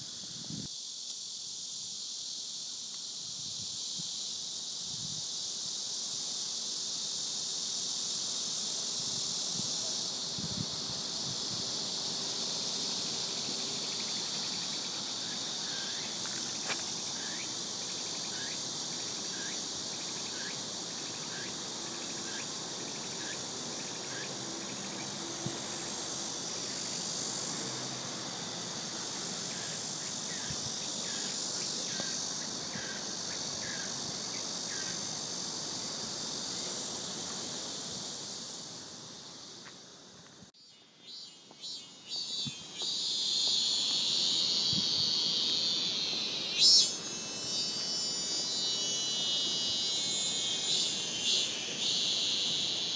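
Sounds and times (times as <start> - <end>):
insects chirping: 0.0 - 52.9.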